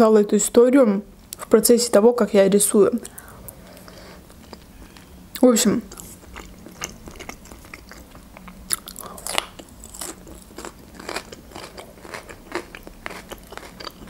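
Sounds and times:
chewing crunchy raw pepper: 5.9s - 14.0s.

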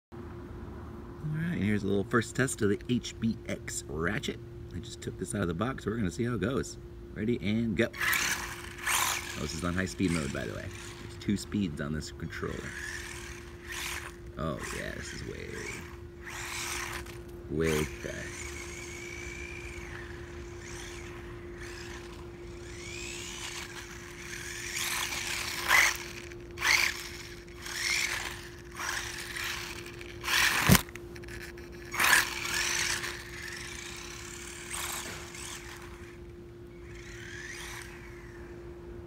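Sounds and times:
electric motor whining: 7.8s - 38.7s.

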